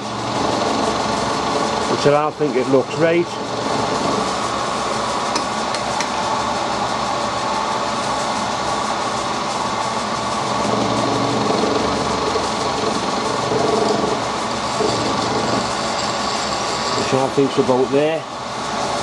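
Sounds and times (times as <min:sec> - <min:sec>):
milling machine whir: 0:00.0 - 0:19.0.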